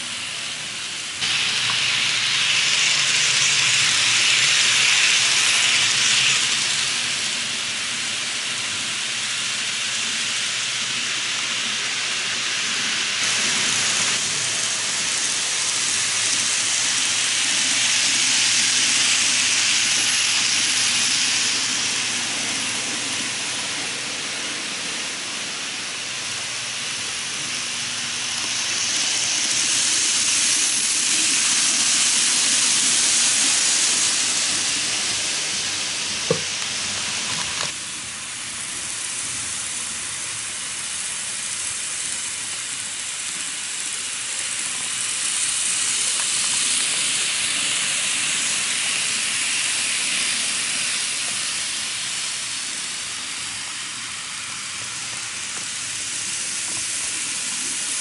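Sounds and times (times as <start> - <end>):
model train whirring on rails: 0.0 - 58.0.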